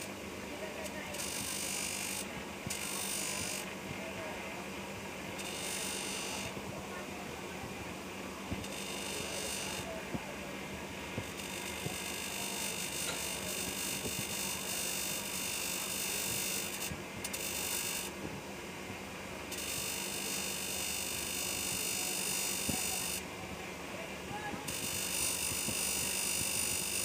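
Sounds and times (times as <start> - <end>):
bench grinder humming: 1.1 - 3.7, 5.4 - 6.6, 8.6 - 9.9, 11.2 - 18.1, 19.5 - 23.2, 24.7 - 27.0.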